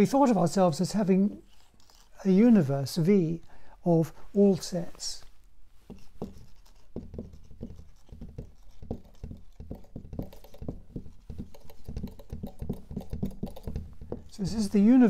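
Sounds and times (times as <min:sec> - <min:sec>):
writing on a board taps: 0:05.9 - 0:14.3.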